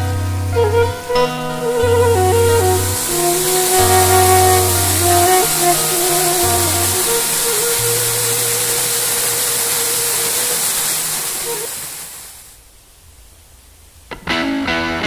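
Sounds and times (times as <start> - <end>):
soft background music: 0.0 - 9.4
waterfall splashing into pool: 0.0 - 12.6.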